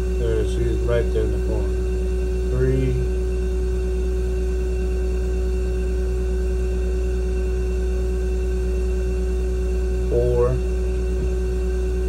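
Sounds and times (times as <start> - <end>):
low hum: 0.0 - 12.0
constant high tone: 2.4 - 3.1.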